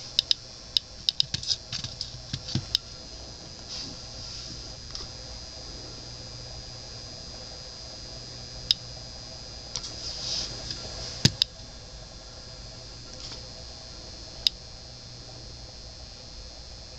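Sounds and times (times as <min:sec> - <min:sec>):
geiger counter clicking: 0:00.0 - 0:03.1, 0:08.6 - 0:09.0, 0:10.6 - 0:11.7
faint high whine: 0:00.0 - 0:16.9
device being handled: 0:01.0 - 0:03.0, 0:09.8 - 0:11.6.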